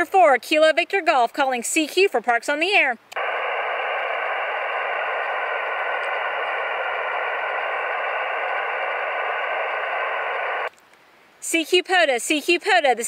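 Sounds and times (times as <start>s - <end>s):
radio band noise hiss: 3.2s - 10.7s.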